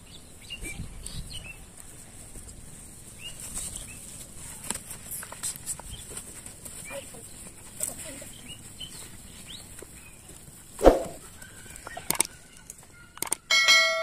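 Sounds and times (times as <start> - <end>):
mouse clicks: 11.8 - 12.3, 13.2 - 13.4.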